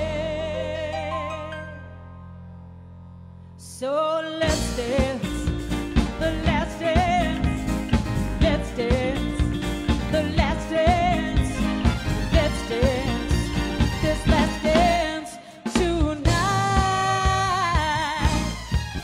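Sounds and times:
woman singing: 0:00.0 - 0:01.8, 0:03.6 - 0:18.6
band with guitars keyboards and drums: 0:04.4 - 0:19.0.

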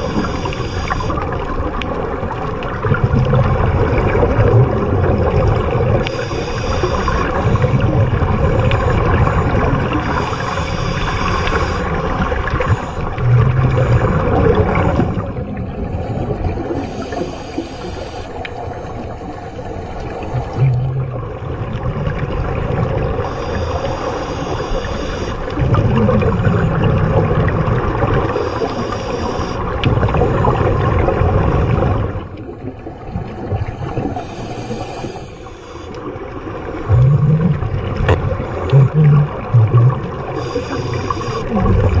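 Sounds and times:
underwater regulator bubbles: 0:00.0 - 0:42.0
regulator hiss: 0:06.1 - 0:07.7, 0:16.8 - 0:18.4, 0:28.3 - 0:29.6, 0:34.2 - 0:36.0, 0:40.4 - 0:41.5.

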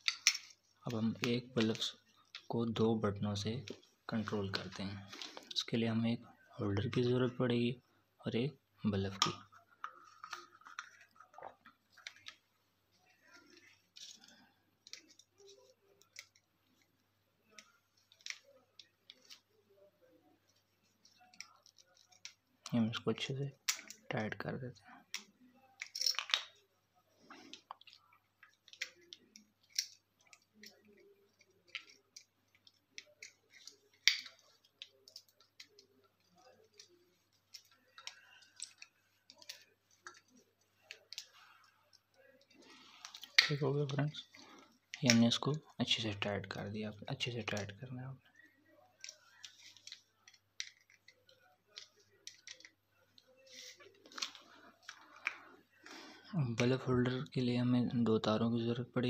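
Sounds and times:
plastic parts clicking and tapping: 0:00.0 - 0:02.5, 0:09.0 - 0:12.5, 0:13.2 - 0:16.9, 0:25.1 - 0:26.6, 0:27.3 - 0:45.6, 0:49.0 - 0:55.5.

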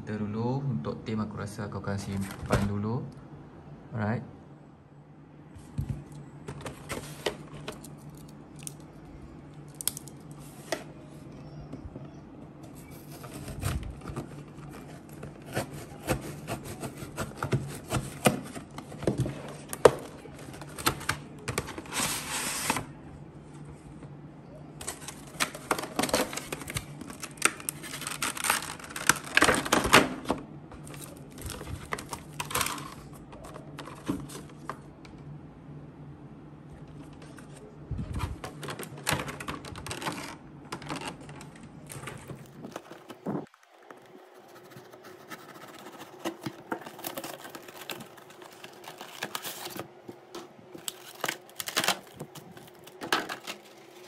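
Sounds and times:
steady low hum: 0:00.0 - 0:54.0
cardboard and plastic crackling: 0:05.6 - 0:09.0, 0:12.6 - 0:22.9, 0:24.8 - 0:34.9, 0:36.9 - 0:54.0.

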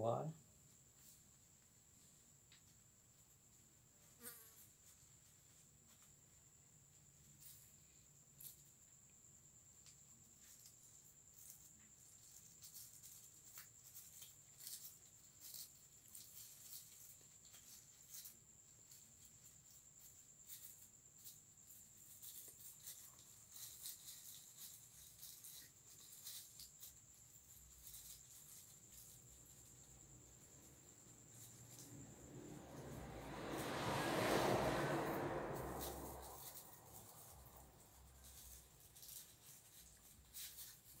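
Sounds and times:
faint rustling: 0:09.8 - 0:41.0.

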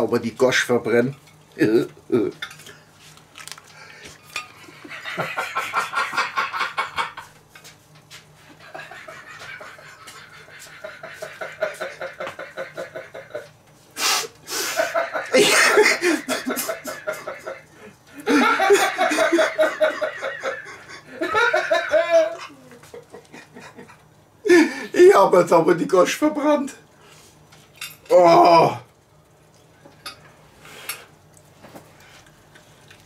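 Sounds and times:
man laughing: 0:01.6 - 0:02.4, 0:04.6 - 0:07.4, 0:08.5 - 0:13.5, 0:14.6 - 0:24.8
breathy puffs of air: 0:13.9 - 0:14.9.

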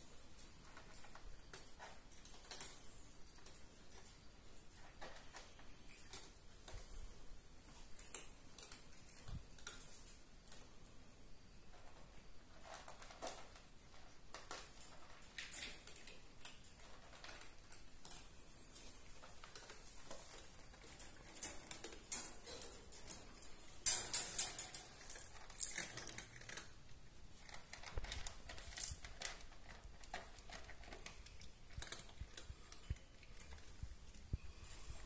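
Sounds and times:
cats crunching dry kibble: 0:00.1 - 0:10.8, 0:11.7 - 0:35.0
wire cage rattling: 0:20.7 - 0:26.5.

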